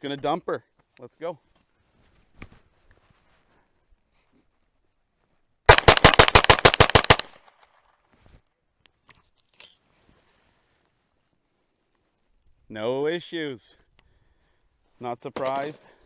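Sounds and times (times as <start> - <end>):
rapid rifle shots: 5.7 - 7.5.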